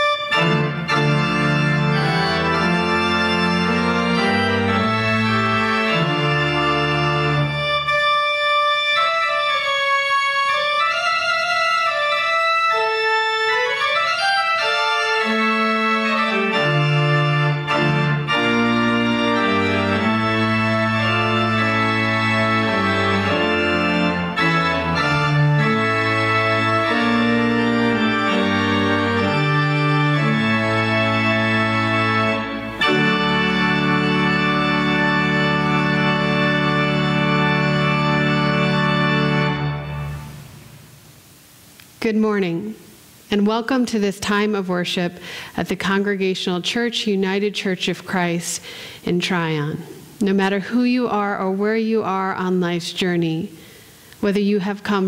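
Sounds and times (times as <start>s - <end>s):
pipe organ playing slow music: 0.0s - 41.5s.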